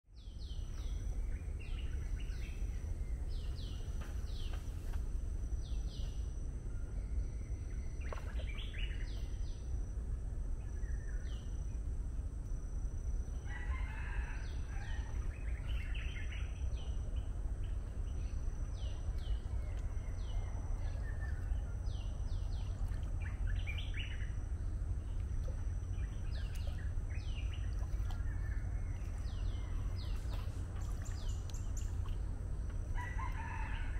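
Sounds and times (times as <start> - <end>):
steady low rumble: 0.1 - 33.9.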